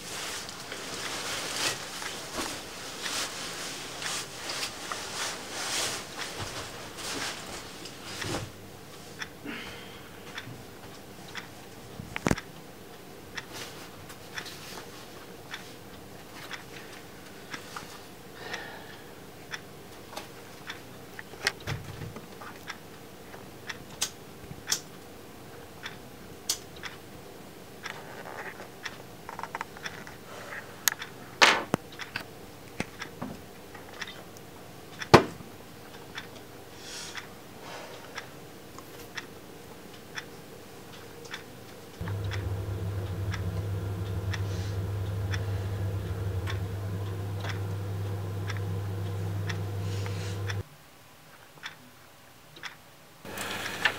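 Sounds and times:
clock ticking: 42.0s - 50.6s
steady low hum: 42.0s - 50.6s.

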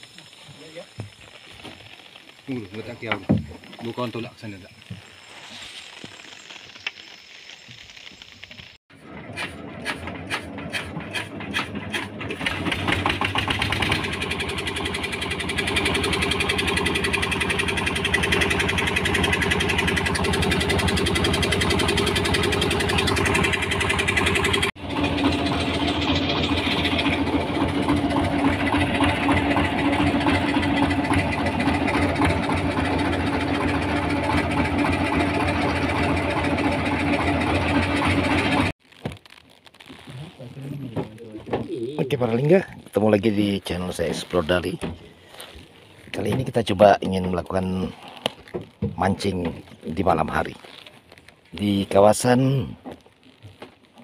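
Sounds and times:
boat engine running: 8.9s - 38.7s.

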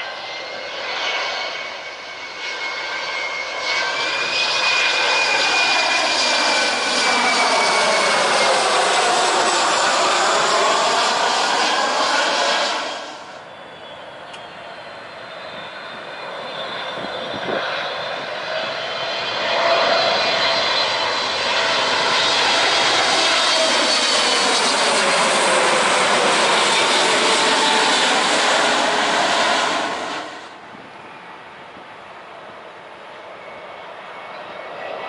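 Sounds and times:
jet plane passing overhead: 0.0s - 35.0s
whining engine tones: 1.4s - 35.0s.

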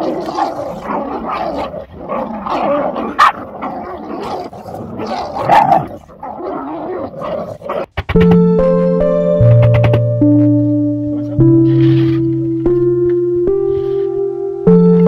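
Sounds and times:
puppies barking: 0.0s - 8.0s
puppies growling: 0.0s - 8.0s.

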